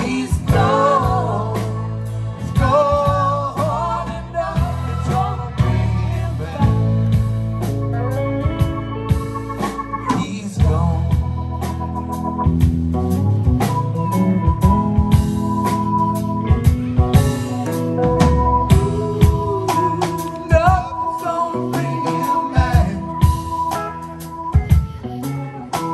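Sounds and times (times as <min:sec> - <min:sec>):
voices singing: 0:00.0 - 0:08.2, 0:17.3 - 0:25.9
live rock band playing: 0:00.0 - 0:25.9.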